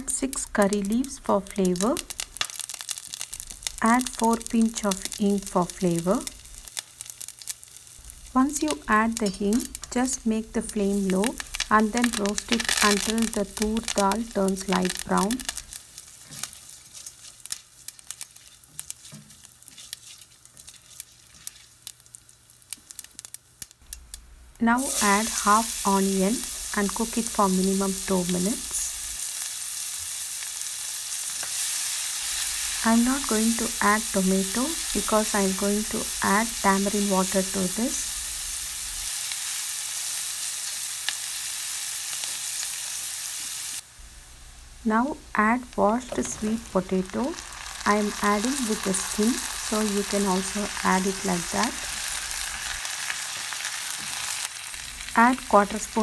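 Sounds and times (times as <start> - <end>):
oil sizzling with sharp pops: 0.0 - 56.0
spatula stirring in pan: 15.6 - 22.3.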